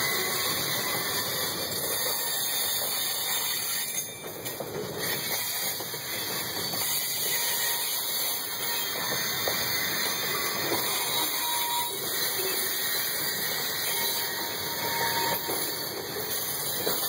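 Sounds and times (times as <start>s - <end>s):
train wheels rolling on rails: 0.0s - 17.0s.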